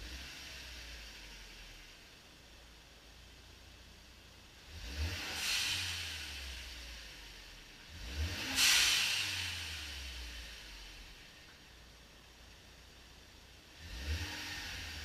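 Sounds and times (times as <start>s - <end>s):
car engine revving: 4.5s - 11.7s, 13.5s - 15.0s
blow-off valve hiss: 8.4s - 9.8s.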